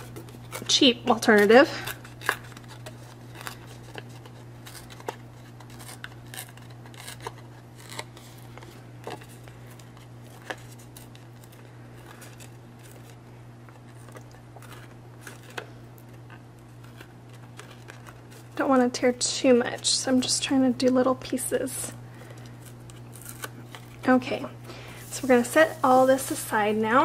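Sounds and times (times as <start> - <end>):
paper tearing: 0.0 - 18.6, 22.7 - 24.3
steady low hum: 0.0 - 27.0.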